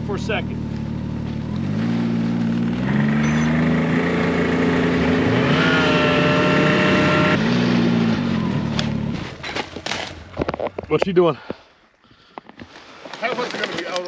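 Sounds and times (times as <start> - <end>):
snowmobile engine: 0.0 - 9.6.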